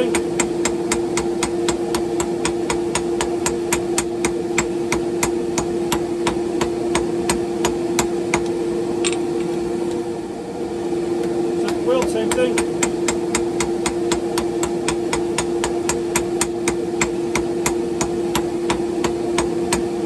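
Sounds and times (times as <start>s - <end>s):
hammer striking iron on anvil: 0.0s - 8.5s, 11.7s - 19.9s
steady hum: 0.0s - 20.0s.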